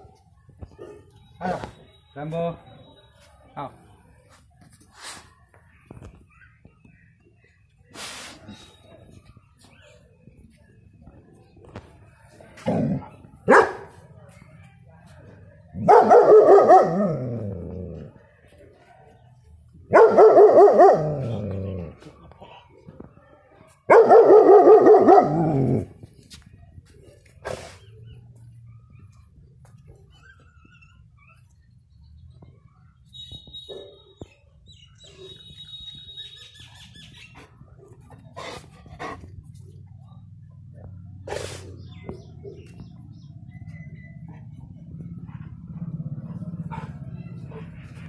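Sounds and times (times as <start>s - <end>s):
puppy barking: 13.5s - 13.9s, 15.8s - 17.1s, 19.9s - 21.3s, 23.9s - 25.4s.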